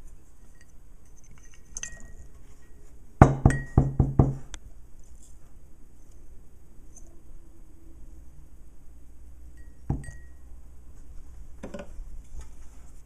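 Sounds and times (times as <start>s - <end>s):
glass and metal clinking: 0.4s - 4.0s, 9.6s - 10.5s.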